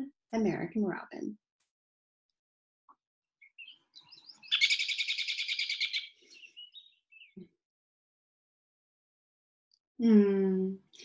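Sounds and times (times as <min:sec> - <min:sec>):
bird chirping: 0:03.4 - 0:07.5.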